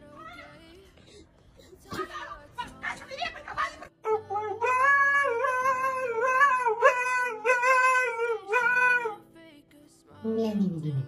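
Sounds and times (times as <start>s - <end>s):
husky howling: 4.0s - 9.2s.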